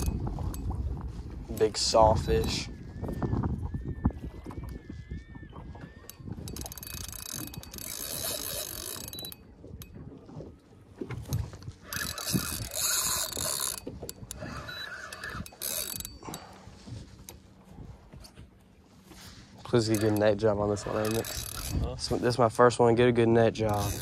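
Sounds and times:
fishing reel gears whirring: 0.0s - 0.8s, 1.5s - 3.4s, 4.0s - 17.4s, 19.1s - 22.2s, 23.5s - 24.0s.

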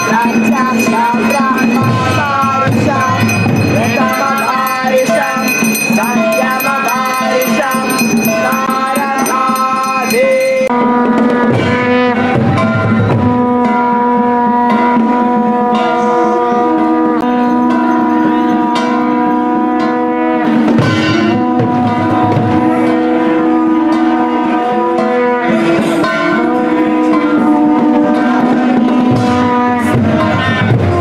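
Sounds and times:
hand cymbals: 0.0s - 10.8s
drum beat: 0.0s - 13.9s, 20.5s - 23.1s, 25.5s - 31.0s
devotional chanting: 0.0s - 31.0s.

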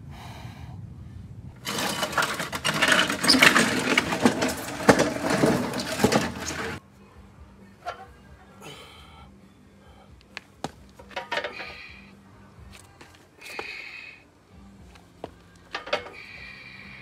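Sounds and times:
sled scraping over gravel: 1.6s - 6.8s.

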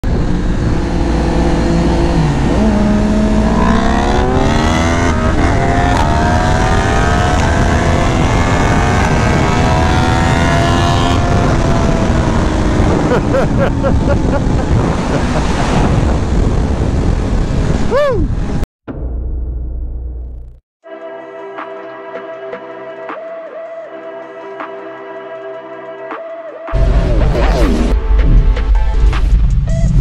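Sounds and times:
motorcycle engine accelerating: 0.0s - 18.6s.

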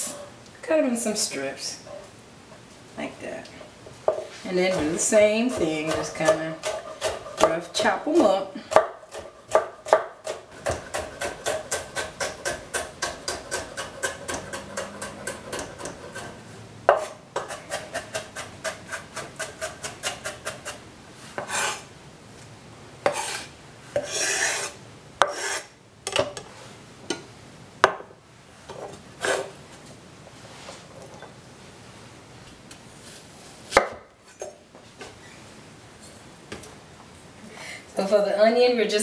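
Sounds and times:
knife chopping on wooden board: 4.1s - 7.6s, 8.7s - 16.2s, 16.9s - 20.7s, 33.8s - 34.0s
knife scraping and tapping board: 23.0s - 25.6s.

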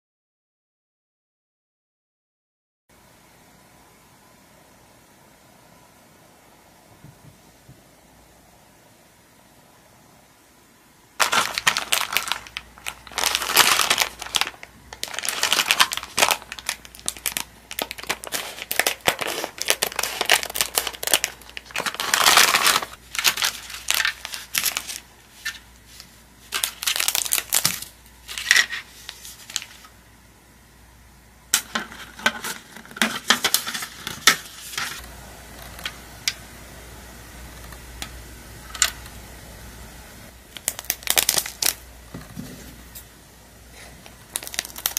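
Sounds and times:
paper box and foil crinkling: 11.2s - 29.9s, 31.6s - 35.0s, 40.5s - 41.8s, 44.1s - 44.9s.

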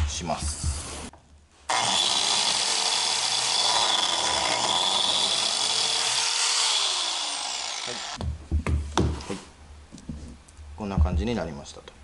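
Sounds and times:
biscuit joiner whining: 1.7s - 8.2s.

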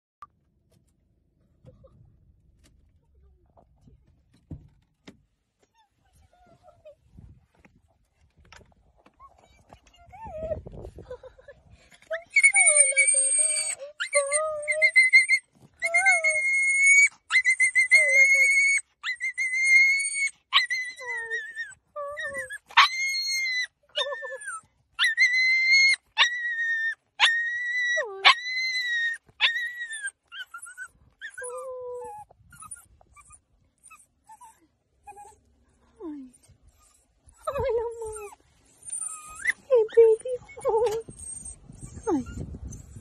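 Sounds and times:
small dog whining: 12.2s - 35.5s, 36.2s - 43.0s.

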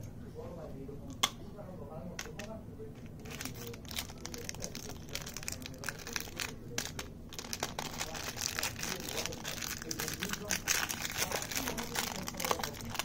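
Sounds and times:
plastic wrapper crinkling: 3.1s - 13.0s.

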